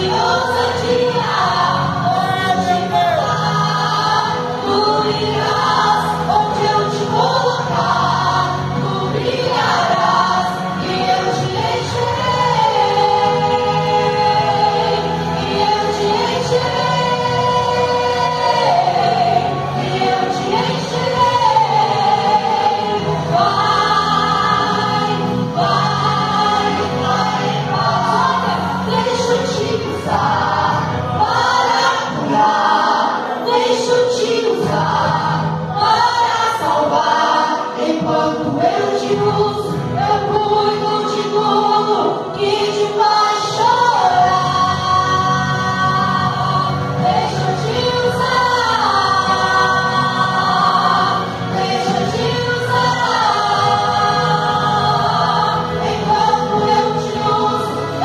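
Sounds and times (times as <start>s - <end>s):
vocal trio singing in harmony: 0.0s - 58.0s.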